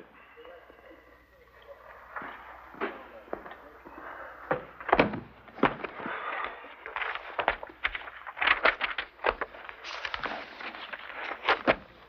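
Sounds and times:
paper rustling: 4.9 - 12.0.

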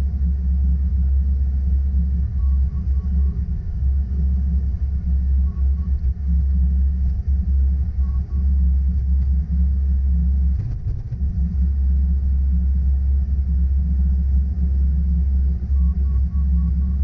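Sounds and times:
diesel engine rumbling: 0.0 - 17.0
short beeps: 5.4 - 6.1, 15.6 - 17.0.

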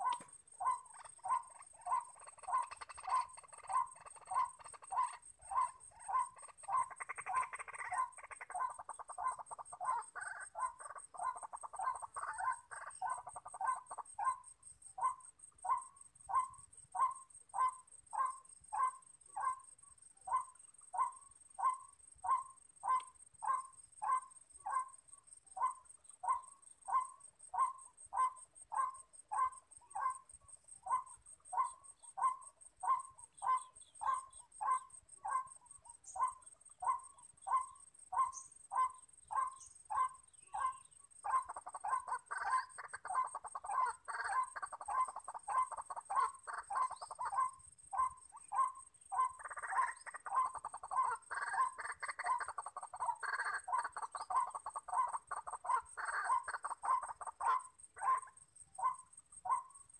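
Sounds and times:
waterhen calling: 0.0 - 14.4, 36.1 - 59.6
rapid bird chattering chorus: 0.0 - 25.0, 25.6 - 59.9.

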